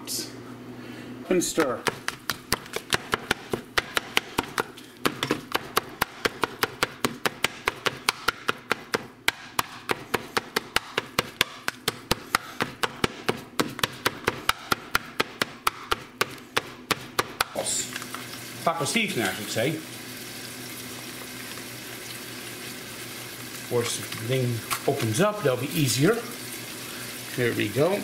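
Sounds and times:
plastic chopper tapping frying pan: 1.8 - 16.3.

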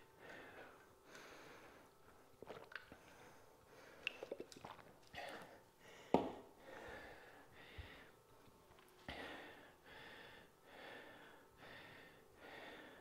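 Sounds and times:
person swallowing and breathing: 0.2 - 7.1
bottle knocking on floor: 6.1 - 6.4.

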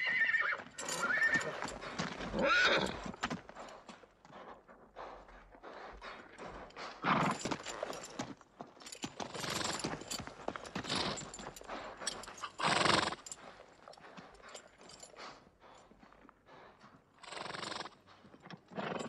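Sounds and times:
horse neighing: 0.0 - 1.7, 2.3 - 3.0
hooves clopping: 0.0 - 19.0.

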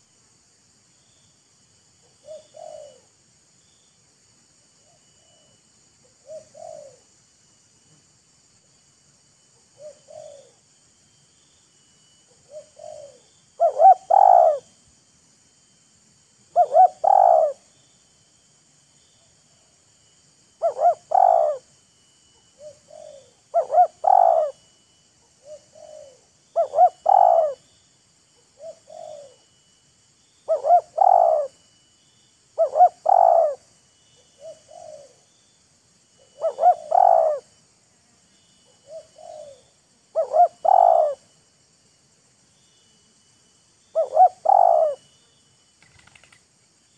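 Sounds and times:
doves cooing: 2.2 - 3.1, 6.1 - 7.0, 9.8 - 10.6, 12.4 - 14.7, 16.6 - 17.6, 20.6 - 21.7, 22.5 - 24.7, 25.4 - 27.6, 28.6 - 29.4, 30.5 - 31.6, 32.6 - 33.7, 34.3 - 35.2, 36.2 - 37.5, 38.7 - 41.3, 44.0 - 45.1.

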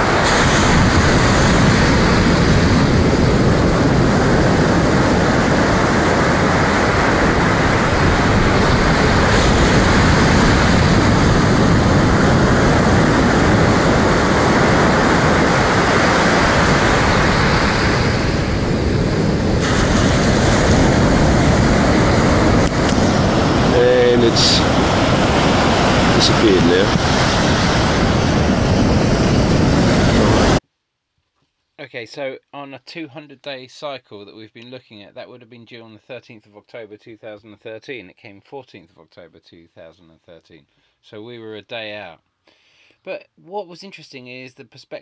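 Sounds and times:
surf rushing on a beach: 0.0 - 30.6.

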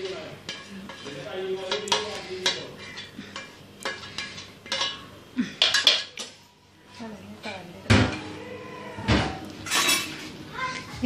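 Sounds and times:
metal spoon scraping steel pan: 0.0 - 5.0.

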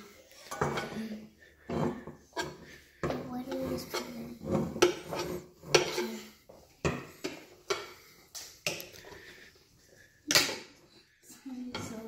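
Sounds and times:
utensil scraping metal bowl: 0.0 - 9.0.

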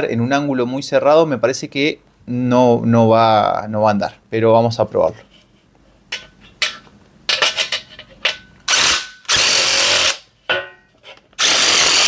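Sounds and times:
impact driver cutting steel: 8.7 - 10.2, 11.4 - 12.0.

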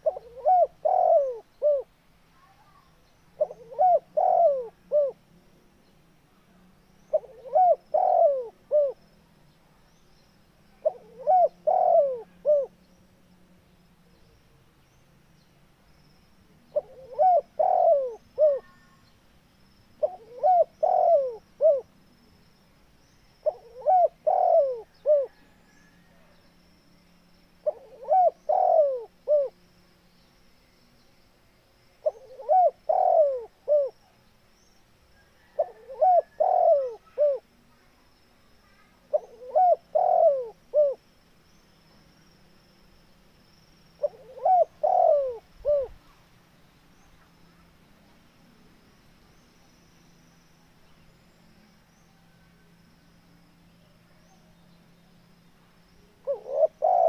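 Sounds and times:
dove cooing: 0.0 - 1.9, 3.4 - 5.2, 7.1 - 9.0, 10.8 - 12.8, 16.7 - 18.9, 20.0 - 21.9, 23.4 - 25.6, 27.6 - 29.6, 32.0 - 34.0, 35.4 - 37.4, 39.1 - 41.0, 44.0 - 46.0, 56.2 - 57.0.

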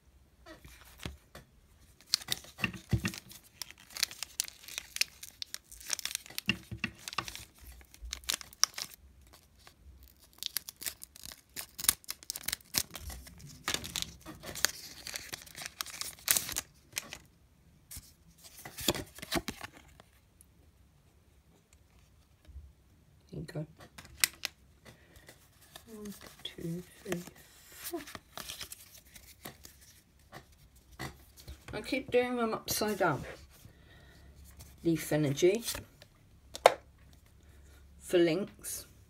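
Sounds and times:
foil wrapper crackling: 2.0 - 17.3.

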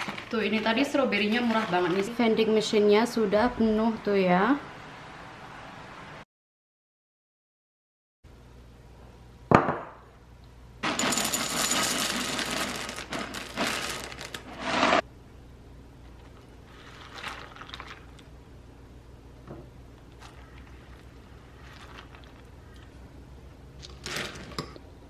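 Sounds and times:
dry cereal rattling into bowls: 0.0 - 2.2, 10.8 - 15.0, 16.7 - 18.2, 20.2 - 22.5.

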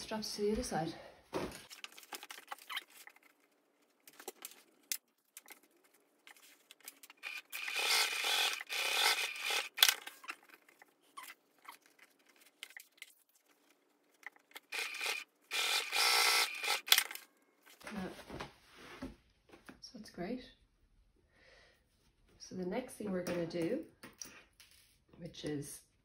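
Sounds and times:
sewing machine stitching: 7.2 - 10.1, 14.7 - 17.1.

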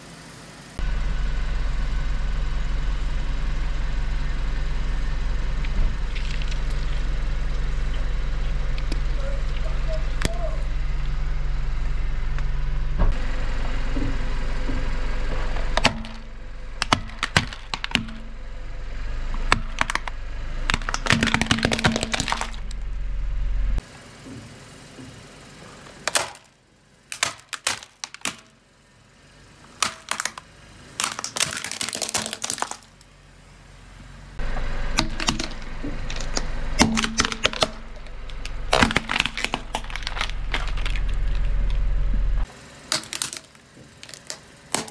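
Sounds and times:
car moving: 0.7 - 26.1, 32.4 - 44.9
plastic cracking and snapping: 19.4 - 22.7, 27.1 - 28.5, 31.0 - 33.0, 35.0 - 41.8, 42.9 - 44.9.

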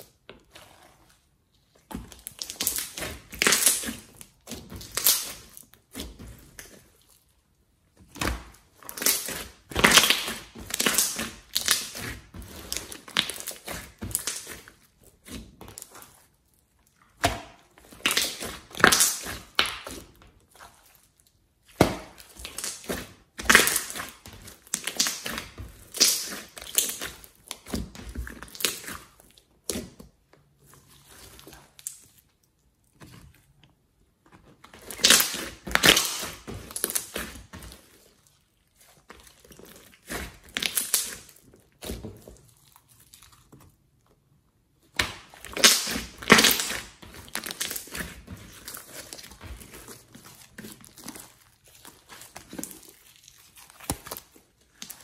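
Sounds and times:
hands squishing slime: 0.0 - 55.0.

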